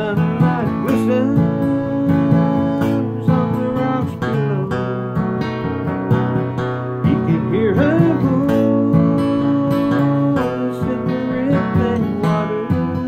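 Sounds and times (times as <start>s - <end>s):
man singing: 0.0s - 5.2s, 6.8s - 13.0s
acoustic guitar strumming: 0.0s - 13.0s.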